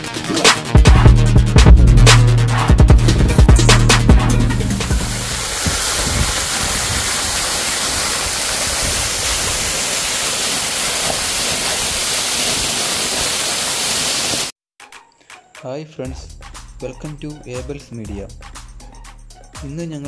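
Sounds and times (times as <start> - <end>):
waterfall rushing: 4.6 - 14.5.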